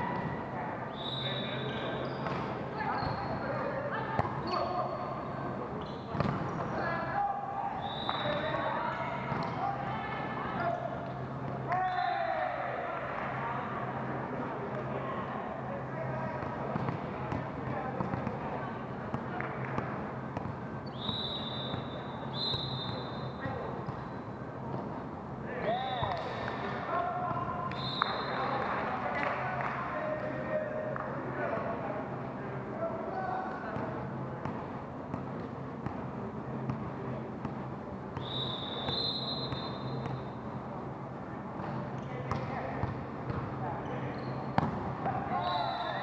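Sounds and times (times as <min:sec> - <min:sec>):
echoing gym hum: 0:00.0 - 0:46.0
referee's whistle blasts: 0:00.9 - 0:01.9, 0:20.9 - 0:23.4, 0:27.7 - 0:28.5, 0:38.2 - 0:40.4, 0:45.3 - 0:46.0.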